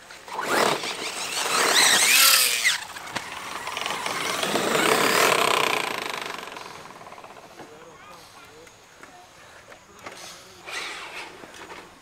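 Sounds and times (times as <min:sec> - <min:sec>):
electric rc truck motors whining: 0:00.0 - 0:07.6, 0:10.6 - 0:11.9.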